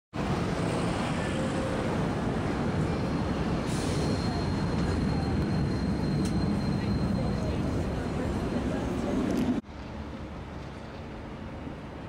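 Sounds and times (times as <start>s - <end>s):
busy street noise: 0.1s - 12.0s
tram rolling on rails: 0.2s - 12.0s.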